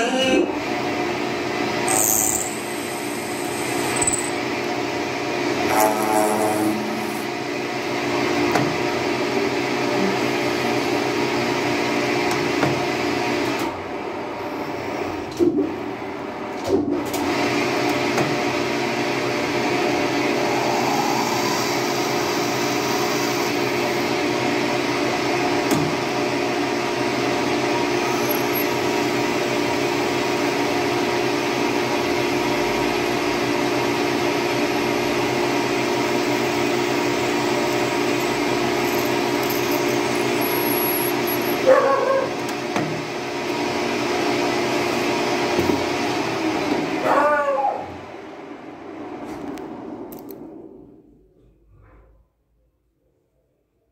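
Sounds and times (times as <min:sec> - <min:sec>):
lathe humming: 0:00.6 - 0:08.3, 0:19.6 - 0:25.6, 0:27.0 - 0:41.6
drill boring into brass: 0:01.8 - 0:04.4, 0:05.6 - 0:07.4, 0:20.4 - 0:24.1, 0:27.8 - 0:29.4, 0:35.0 - 0:41.6.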